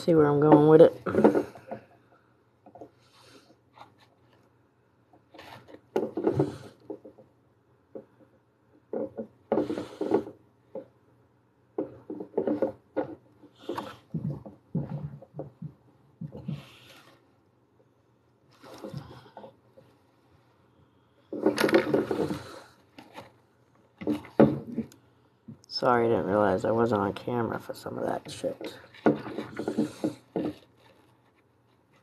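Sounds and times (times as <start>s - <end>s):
rubbing and scraping clay: 28.0s - 32.0s.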